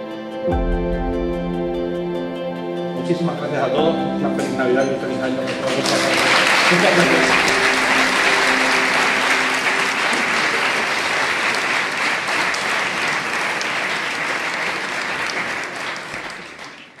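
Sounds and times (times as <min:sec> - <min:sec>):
crowd applauding: 0:04.4 - 0:17.0.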